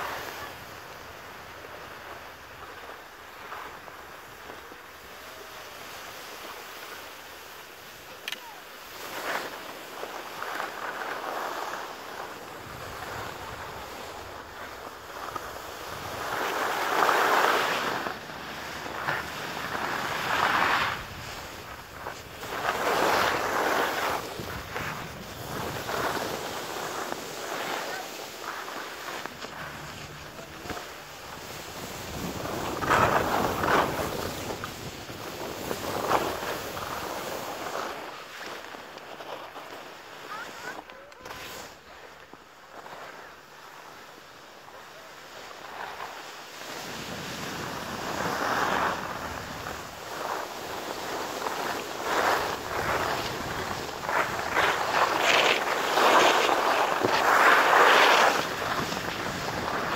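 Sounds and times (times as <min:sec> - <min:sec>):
skis sliding over packed snow: 0:00.0 - 0:59.9
wind on microphone: 0:12.4 - 0:28.4, 0:29.3 - 0:37.6.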